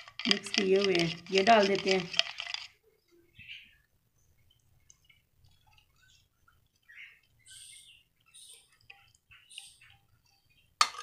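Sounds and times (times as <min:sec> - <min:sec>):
faint high chirps: 0:05.8 - 0:10.8.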